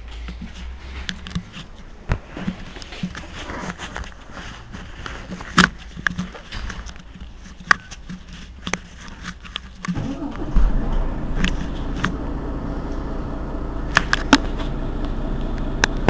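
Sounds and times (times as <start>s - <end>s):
bus diesel engine idling: 10.0s - 16.0s.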